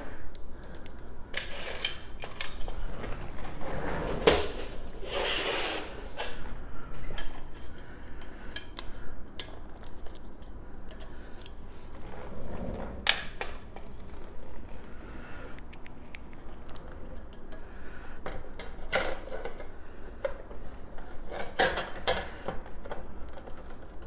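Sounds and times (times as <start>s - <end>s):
rustling scrape: 2.7s - 6.6s.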